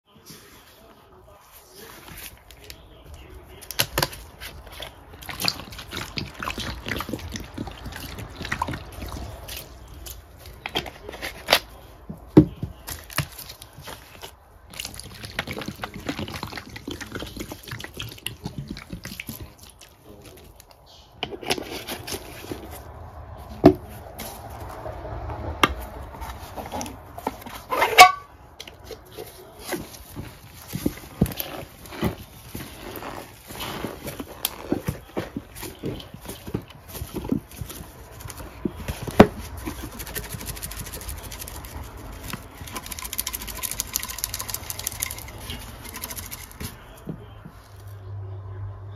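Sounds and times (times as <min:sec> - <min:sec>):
liquid glugging and dripping: 0:04.7 - 0:10.6, 0:14.7 - 0:20.7.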